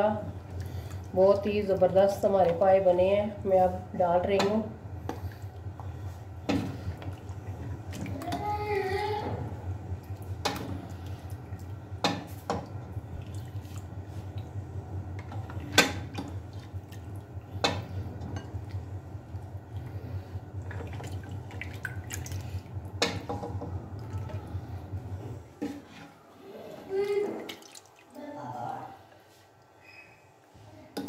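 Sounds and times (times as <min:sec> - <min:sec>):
steady low hum: 0:00.0 - 0:29.8
gravy dripping and splashing: 0:12.4 - 0:14.6, 0:20.6 - 0:23.2, 0:27.0 - 0:28.4.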